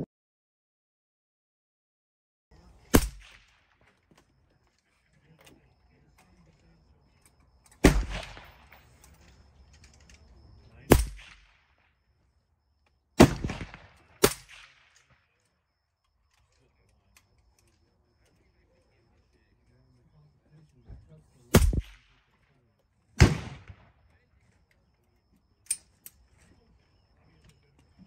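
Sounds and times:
suppressed rifle shots: 0:02.9 - 0:03.8, 0:07.7 - 0:08.8, 0:10.9 - 0:11.8, 0:13.2 - 0:15.2, 0:21.5 - 0:22.3, 0:23.2 - 0:24.0.

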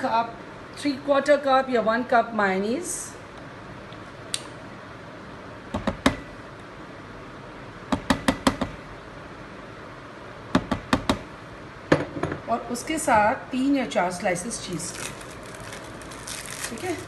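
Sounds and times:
dishes knocking and clicking: 0:11.9 - 0:12.4.

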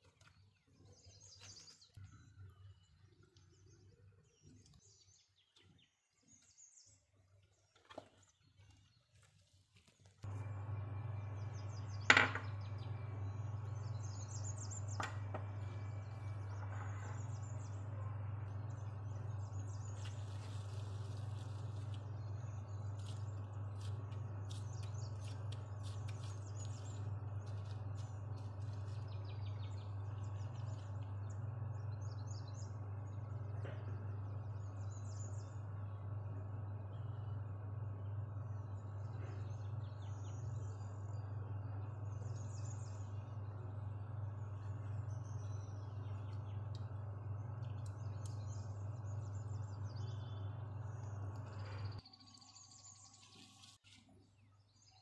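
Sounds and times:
birds chirping: 0:00.0 - 0:55.0
steady low hum: 0:10.2 - 0:53.8.

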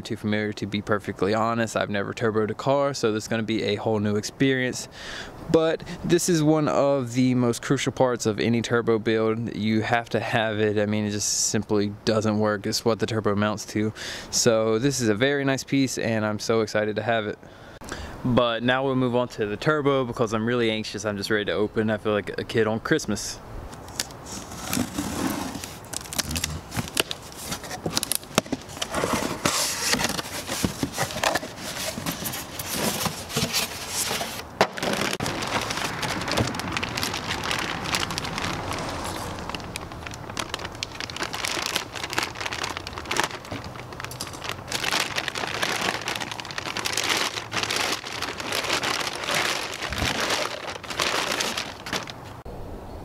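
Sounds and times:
knife slitting cardboard box tape: 0:23.9 - 0:35.0
plastic bag crinkling: 0:24.0 - 0:52.4
cardboard flaps pulled back: 0:24.3 - 0:36.6.

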